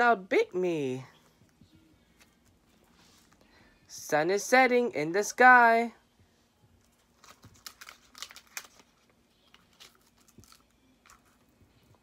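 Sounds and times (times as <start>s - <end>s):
paper rustling and crinkling: 6.8s - 11.5s.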